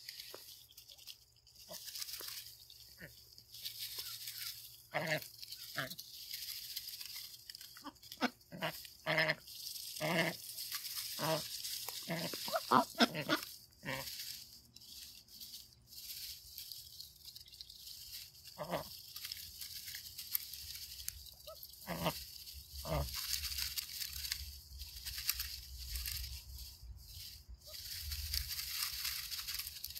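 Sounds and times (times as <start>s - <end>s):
ducks quacking: 3.8s - 6.0s, 7.6s - 14.2s, 18.4s - 19.0s, 21.4s - 23.3s.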